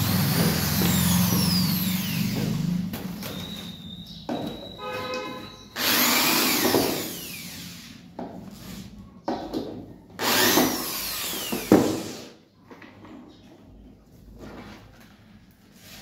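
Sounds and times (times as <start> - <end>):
electric drill driving screws: 0.0 - 2.8, 5.8 - 8.0, 10.2 - 12.3.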